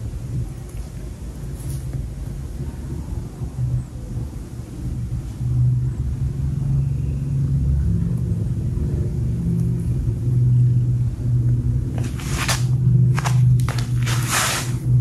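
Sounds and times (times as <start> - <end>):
scratchy rustles: 11.9 - 14.9.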